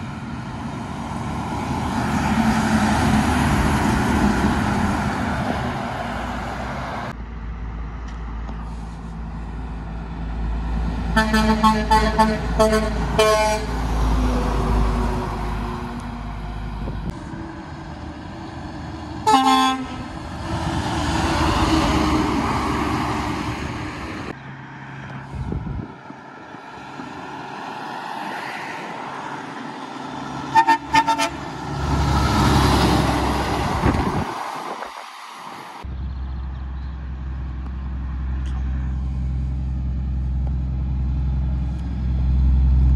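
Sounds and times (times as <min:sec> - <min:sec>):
heavy trucks passing: 0:00.0 - 0:42.9
truck air horn toots: 0:11.1 - 0:13.8, 0:19.2 - 0:20.1, 0:30.5 - 0:31.6.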